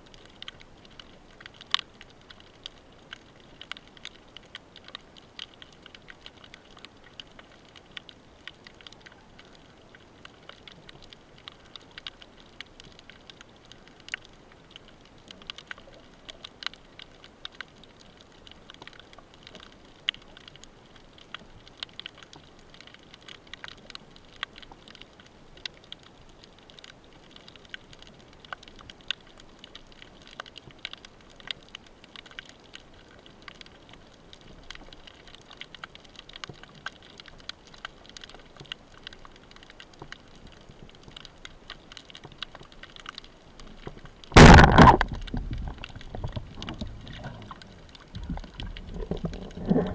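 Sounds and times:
underwater reef crackling: 0:00.0 - 0:49.9
faint hiss: 0:25.2 - 0:49.9.

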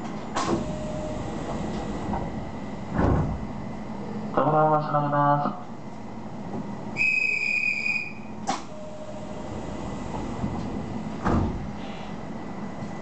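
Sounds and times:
sliding doors closing thump: 0:00.0 - 0:03.6, 0:09.4 - 0:12.0.

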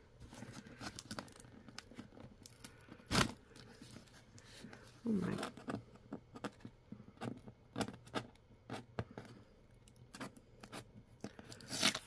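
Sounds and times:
cutter slitting packing tape: 0:11.6 - 0:12.0.

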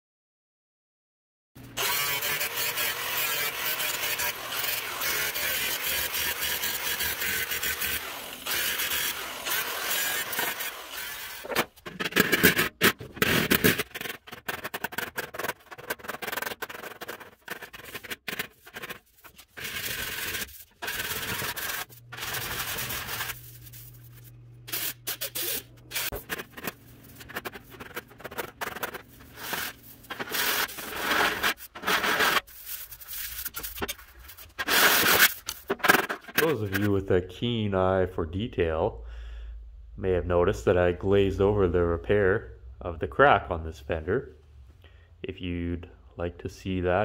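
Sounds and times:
welder crackling: 0:01.6 - 0:12.9, 0:13.6 - 0:36.8
gloved hand rubbing metal: 0:10.0 - 0:36.9.

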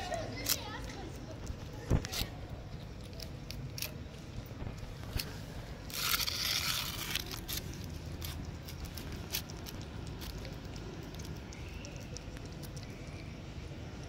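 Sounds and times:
cat chewing and licking food: 0:00.0 - 0:14.0
rustling scrape: 0:04.6 - 0:09.5.

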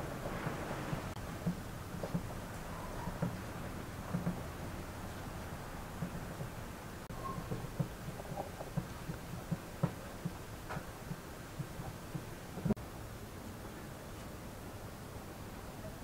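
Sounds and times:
dough thudding on wooden board: 0:07.4 - 0:12.8.

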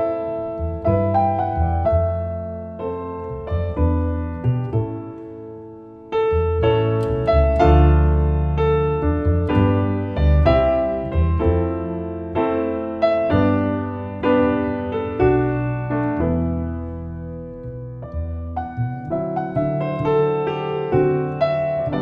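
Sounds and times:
grand piano: 0:00.0 - 0:22.0
plucked double bass: 0:00.0 - 0:22.0.

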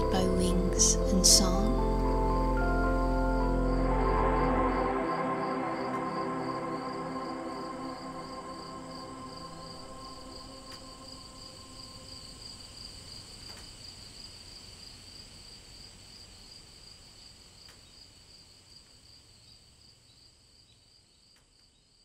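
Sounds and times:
soft ambient music: 0:00.0 - 0:13.6
crickets trilling: 0:00.0 - 0:21.4.

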